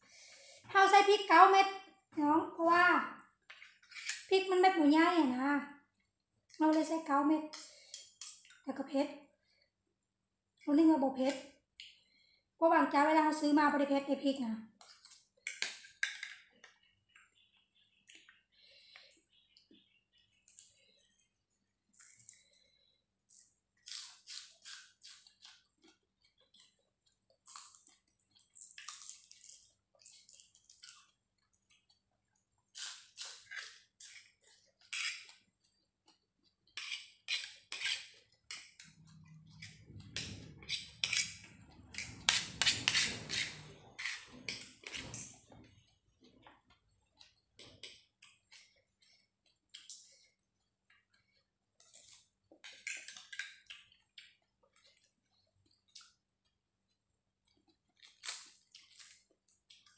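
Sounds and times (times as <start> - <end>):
person chewing crunchy food: 20.2 - 59.9.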